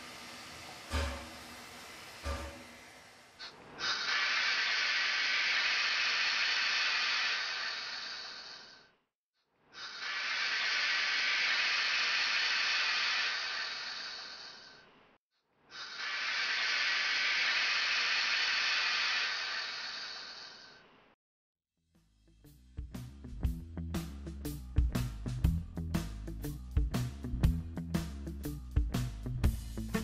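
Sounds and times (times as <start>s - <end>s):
steam locomotive hissing: 0.0s - 8.9s, 9.8s - 14.8s, 15.7s - 20.8s.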